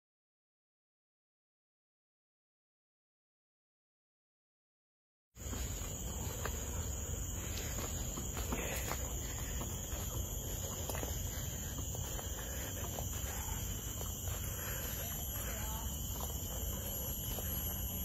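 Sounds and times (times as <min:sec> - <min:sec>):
faint footsteps on path: 0:05.4 - 0:18.0
insects droning: 0:05.4 - 0:18.0.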